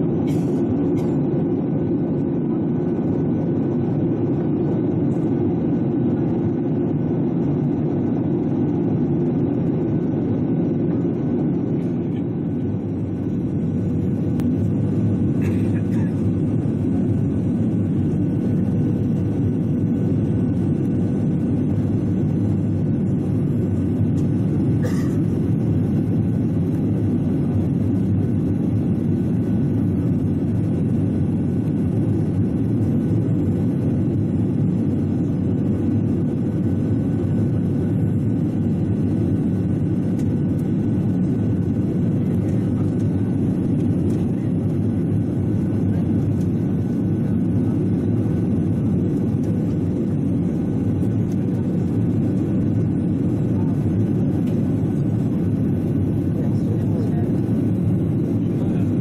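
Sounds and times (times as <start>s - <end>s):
airplane cabin engine rumble: 0.0s - 59.0s.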